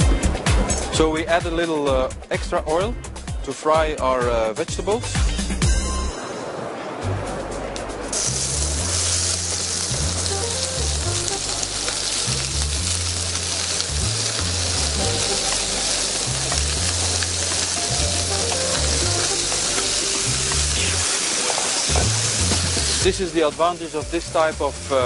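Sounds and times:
background music bass line: 0.0s - 6.2s, 7.0s - 21.1s, 21.9s - 25.0s
vegetables sizzling in hot oil: 8.1s - 25.0s.

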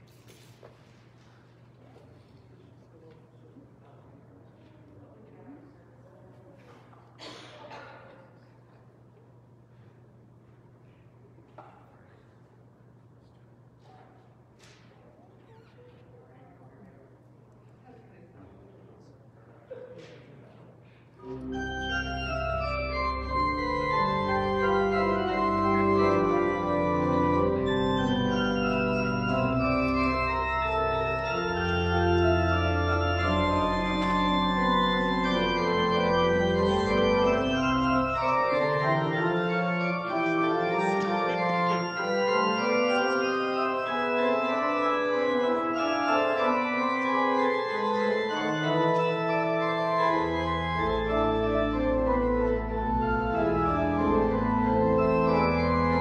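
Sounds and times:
church organ chords: 21.2s - 56.0s
deep organ pedal bass: 21.4s - 56.0s.

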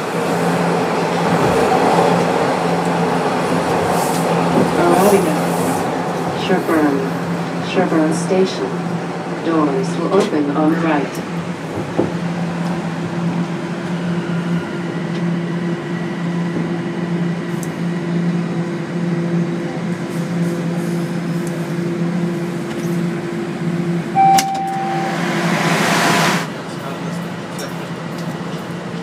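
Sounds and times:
subway car running hum: 0.0s - 29.0s
short beep: 24.2s - 25.5s.

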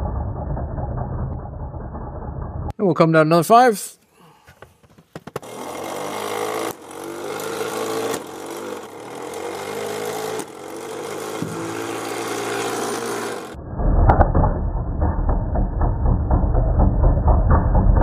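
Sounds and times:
flywheel motor whine: 5.4s - 13.6s.

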